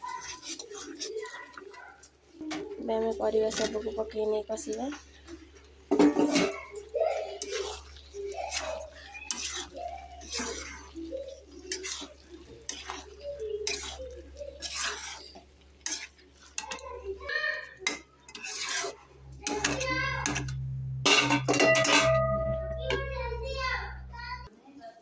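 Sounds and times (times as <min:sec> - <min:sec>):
metal spatula scraping a metal pan: 0:00.0 - 0:01.4, 0:05.9 - 0:24.3.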